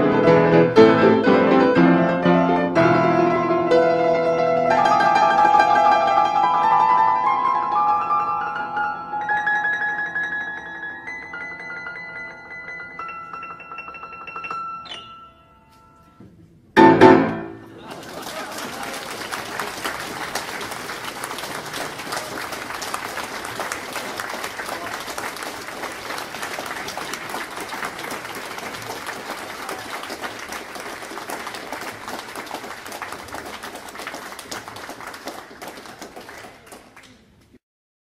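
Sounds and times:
audience applauding: 17.6s - 37.4s.

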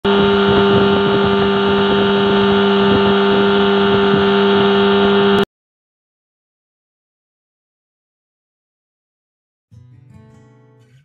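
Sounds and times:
outboard motor running: 0.0s - 5.4s.

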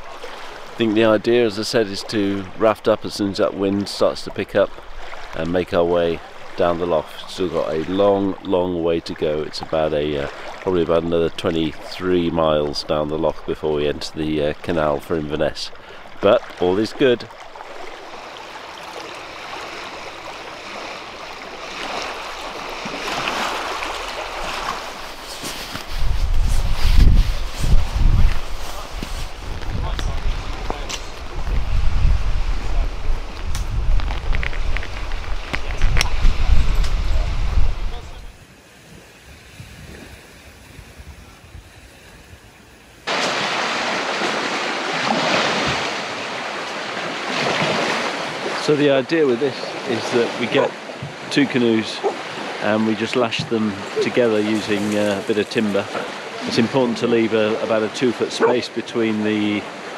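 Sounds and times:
waves lapping on shingle: 0.0s - 42.3s, 42.9s - 59.9s
small waves breaking on pebbles: 17.2s - 27.5s, 43.0s - 48.7s
wind buffeting microphone: 25.8s - 42.5s
low wind rumble: 25.8s - 43.0s.

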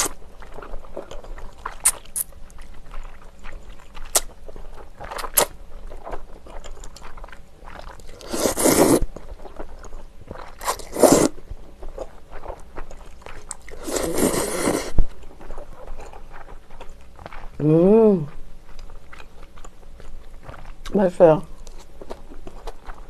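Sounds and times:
wet chewing clicks: 0.0s - 17.7s, 18.3s - 23.0s
slurping noodles from soup: 8.1s - 9.1s, 10.6s - 11.4s, 13.7s - 15.0s.

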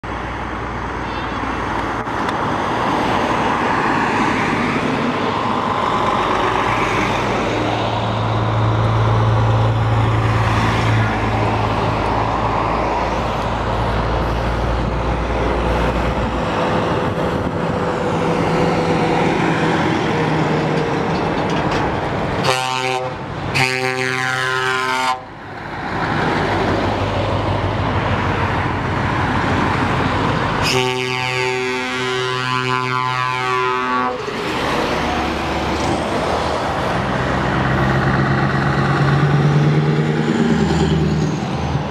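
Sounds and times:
heavy trucks driving past: 0.0s - 41.9s
truck horn blasts: 22.4s - 25.3s, 30.6s - 34.3s.

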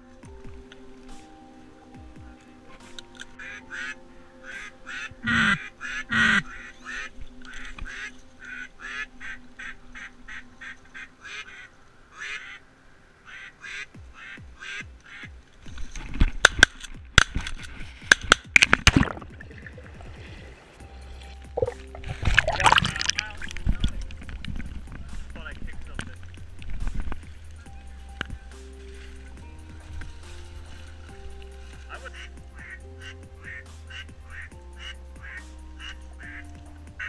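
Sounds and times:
duck quacks: 3.4s - 7.1s, 7.9s - 12.6s, 13.3s - 15.3s, 31.9s - 37.0s.

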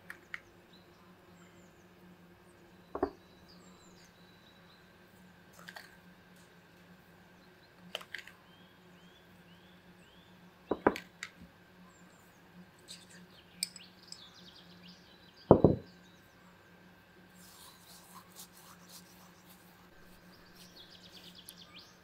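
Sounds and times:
small birds chirping: 0.0s - 5.8s, 7.2s - 11.0s, 11.8s - 22.0s
spoon clicking on ceramic dishes: 13.6s - 14.2s
dish thumping on table: 15.5s - 15.9s.

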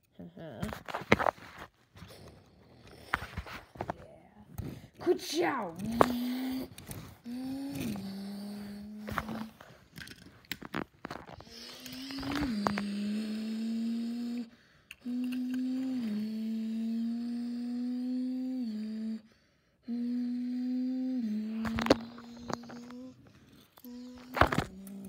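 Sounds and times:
toy cars clicking and knocking: 2.2s - 17.0s, 21.4s - 25.0s
child making engine noises: 5.0s - 9.6s, 11.4s - 19.2s, 19.9s - 23.2s, 23.8s - 25.0s.

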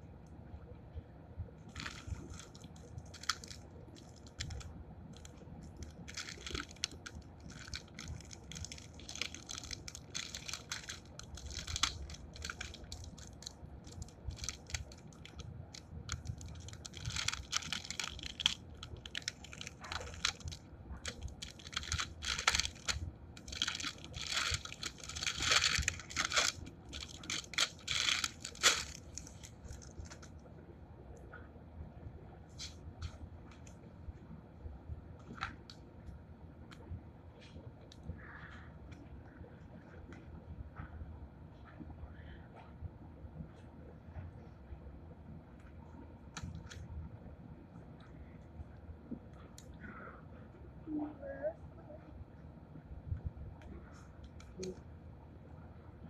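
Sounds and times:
packaging crinkling: 1.7s - 30.4s.

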